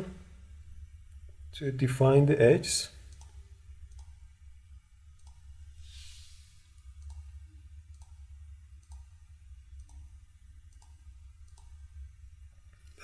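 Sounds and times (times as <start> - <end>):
low steady hum: 0.0 - 13.0
soft hiss: 0.0 - 13.0
computer mouse clicking: 3.1 - 4.2, 5.2 - 5.5, 6.8 - 7.3, 7.9 - 9.2, 9.8 - 10.1, 10.7 - 11.8.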